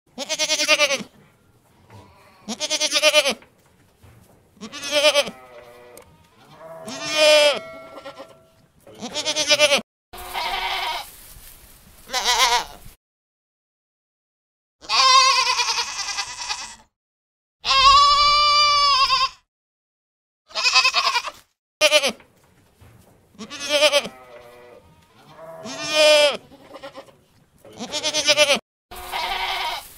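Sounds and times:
sheep bleating: 0:00.1 - 0:01.1, 0:01.9 - 0:03.4, 0:04.6 - 0:11.1, 0:14.8 - 0:16.9, 0:17.6 - 0:19.4, 0:20.5 - 0:22.2, 0:23.4 - 0:27.1, 0:27.7 - 0:29.9.

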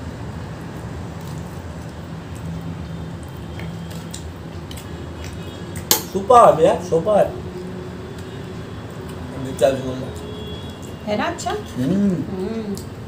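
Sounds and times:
squishy chewing: 0:00.6 - 0:05.9.

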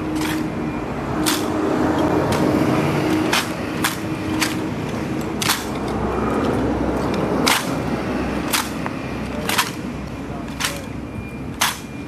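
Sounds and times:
boots striking stone paving: 0:01.3 - 0:07.8.

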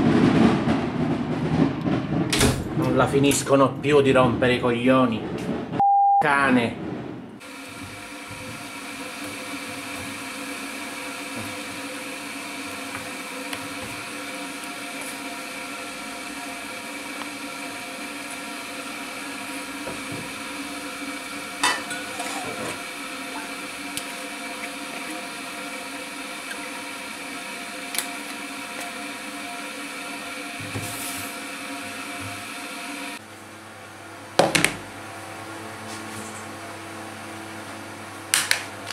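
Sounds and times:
steady mechanical hum: 0:01.0 - 0:38.9.

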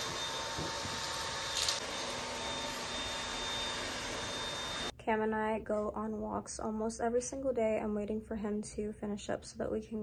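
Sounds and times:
stick vacuum running: 0:00.0 - 0:04.9.

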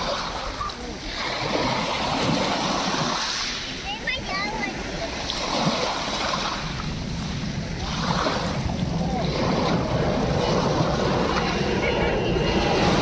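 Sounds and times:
waves washing over pebbles: 0:00.0 - 0:13.0
low rumble: 0:06.5 - 0:13.0.

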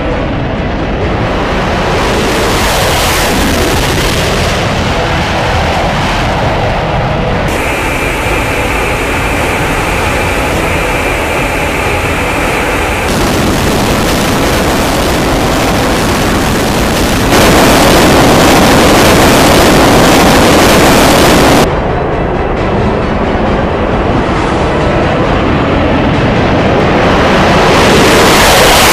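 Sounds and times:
fighter jet engine roar: 0:00.0 - 0:28.9.

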